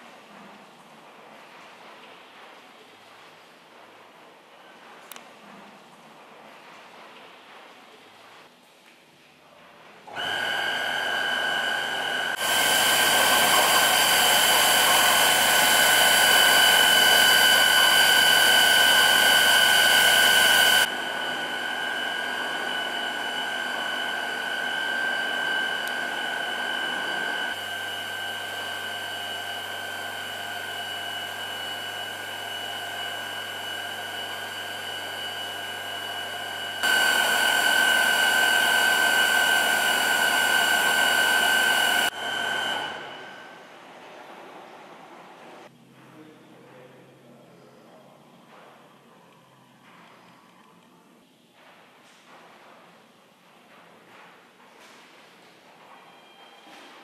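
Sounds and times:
machinery hissing and whirring: 11.9 - 45.7.

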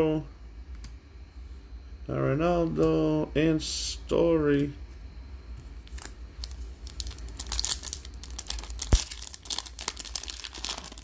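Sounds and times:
foil wrapper crinkling: 5.8 - 11.0.

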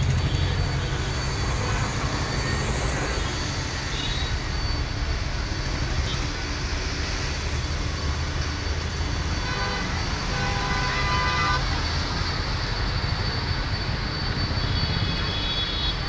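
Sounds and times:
thin high tone: 0.0 - 16.0
vehicle horns tooting: 9.4 - 12.0.

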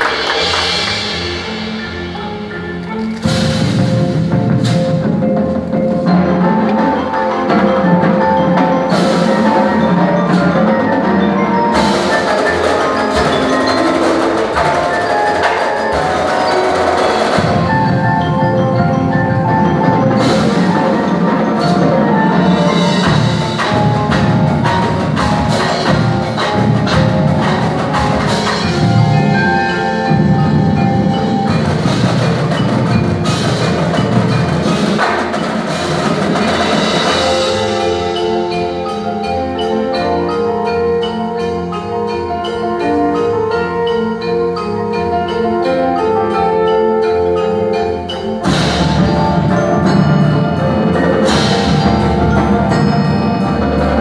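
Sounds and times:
marimbas and xylophones playing: 0.0 - 54.0.

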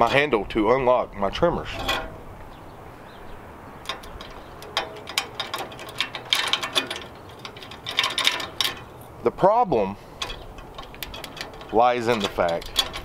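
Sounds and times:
metal clicks and rattles: 1.6 - 2.6, 3.8 - 9.3, 10.1 - 13.0.

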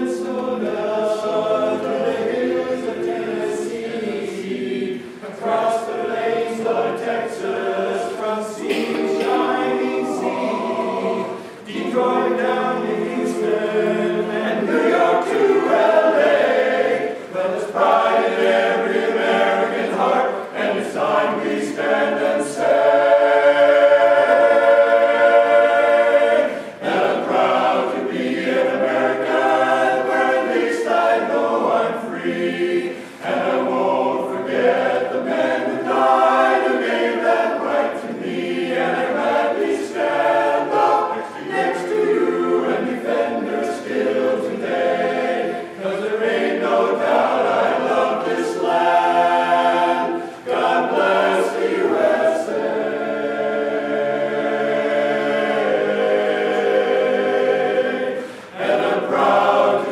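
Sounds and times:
male chorus singing a cappella: 0.0 - 59.9.

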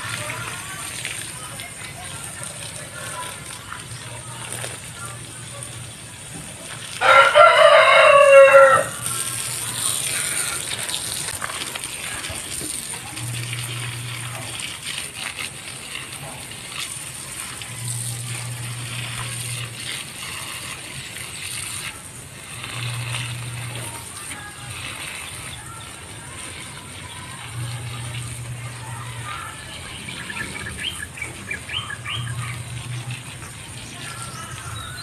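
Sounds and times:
garden hose spraying water: 0.0 - 35.0
rooster crowing: 7.0 - 9.1.

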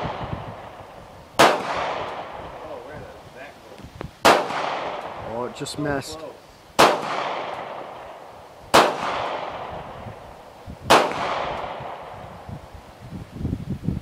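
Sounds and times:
gunshots with long echo: 0.0 - 2.7, 4.2 - 5.7, 6.8 - 12.5.

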